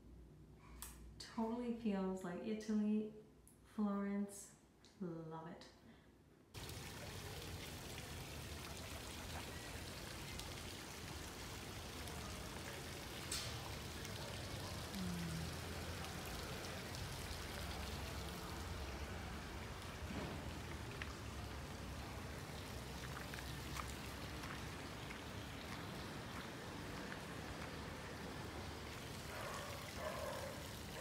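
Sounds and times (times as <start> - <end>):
steady rain falling: 6.6 - 31.0.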